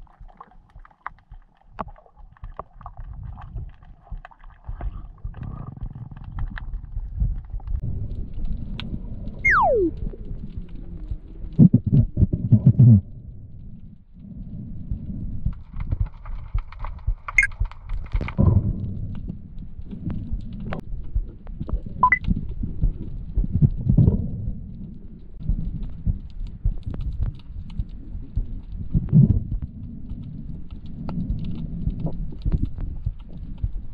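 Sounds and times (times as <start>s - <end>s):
underwater gurgles and knocks: 0.0s - 33.9s
underwater rumbling water: 0.0s - 33.9s
falling whistle: 9.5s - 9.9s.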